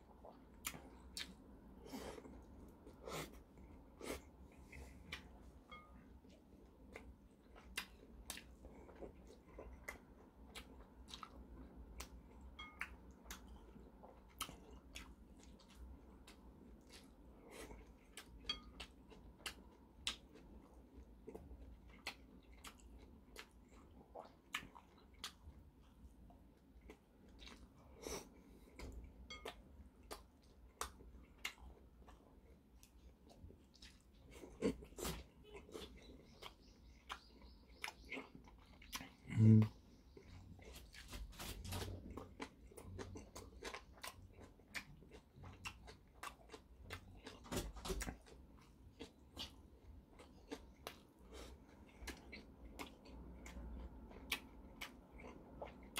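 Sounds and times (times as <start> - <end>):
man chewing food: 0.0 - 55.9.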